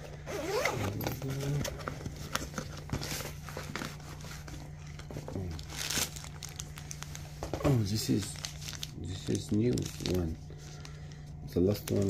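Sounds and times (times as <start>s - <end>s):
nylon fabric rustling: 0.3s - 1.5s.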